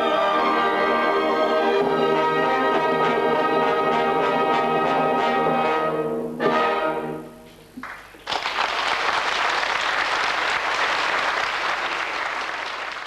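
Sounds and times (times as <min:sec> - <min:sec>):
audience applause: 0:07.8 - 0:13.0.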